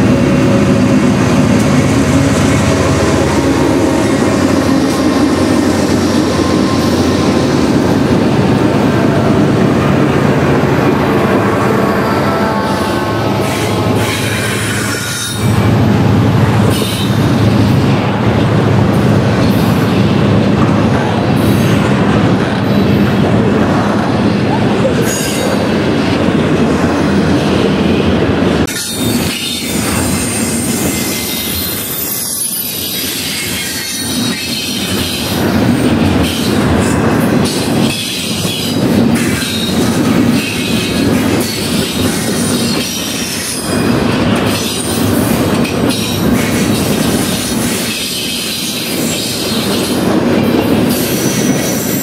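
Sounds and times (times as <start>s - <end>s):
train wheels rumbling and clacking: 0.0s - 52.0s
high wheel squeal: 2.0s - 8.1s, 28.7s - 35.3s.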